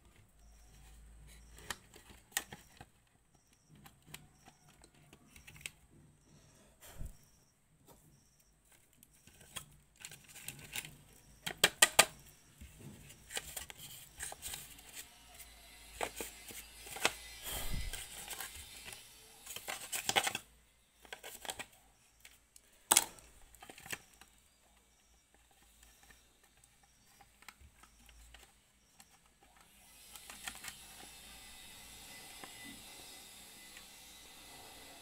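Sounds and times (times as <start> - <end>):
plastic clicks and knocks: 9.0 - 14.4.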